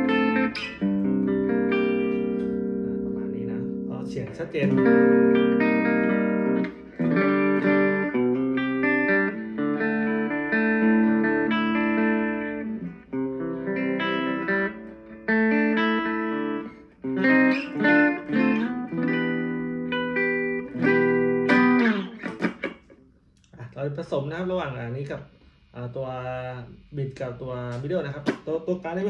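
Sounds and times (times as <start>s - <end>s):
electric guitar chords ringing: 0.0s - 22.9s.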